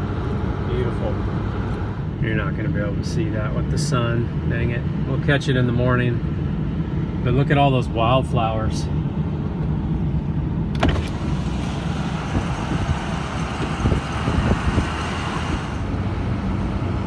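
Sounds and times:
road rumble and tyre noise: 0.0s - 17.0s
air rushing past window: 10.6s - 16.6s.

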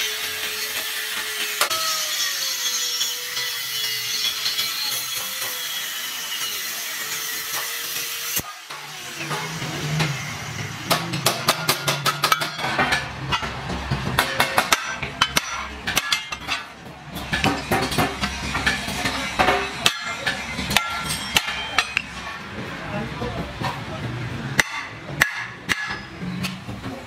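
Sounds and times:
hammer striking steel tube: 10.9s - 13.5s, 14.2s - 22.1s, 24.6s - 26.6s.

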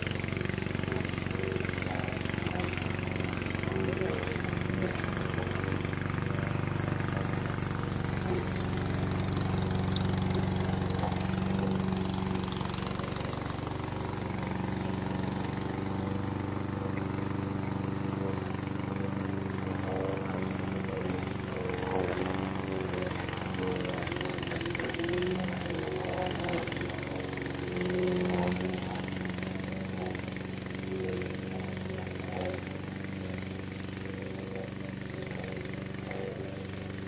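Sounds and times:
mower engine running: 0.0s - 37.0s.

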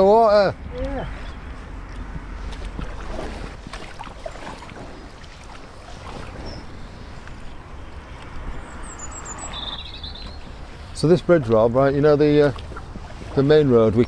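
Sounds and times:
low wind rumble: 0.0s - 14.0s
paddles splashing in water: 0.6s - 14.0s
water dripping: 7.2s - 14.0s.

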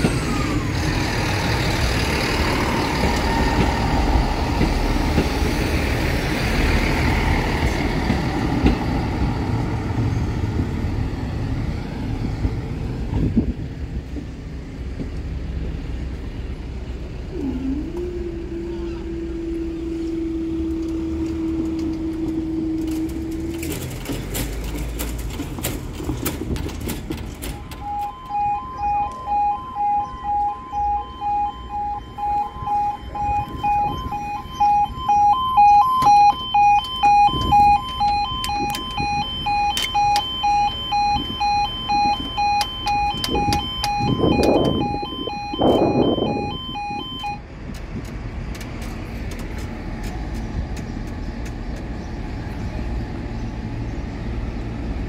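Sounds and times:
level crossing two-tone alarm: 27.4s - 47.4s.

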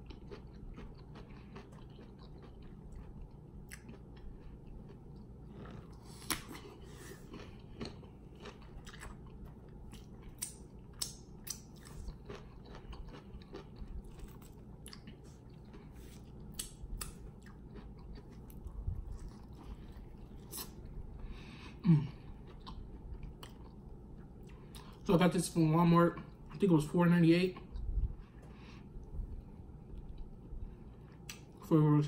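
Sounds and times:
crunchy chewing: 0.0s - 25.0s.

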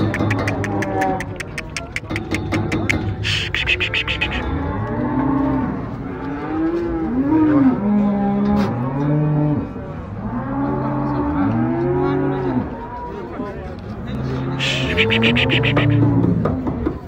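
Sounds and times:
cattle mooing: 3.2s - 9.4s, 14.6s - 16.1s.

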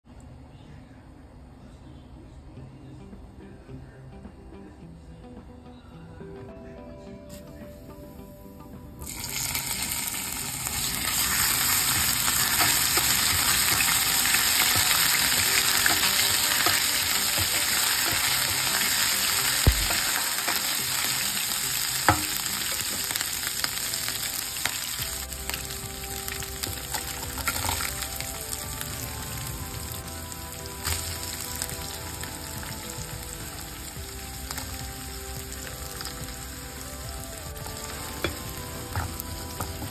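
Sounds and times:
ginger and garlic sizzling in oil: 9.0s - 39.9s.

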